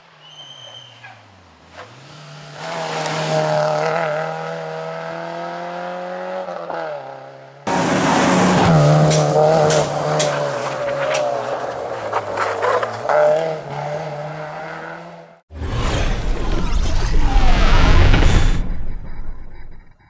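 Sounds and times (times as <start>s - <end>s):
rally car engine revving high: 1.7s - 15.4s.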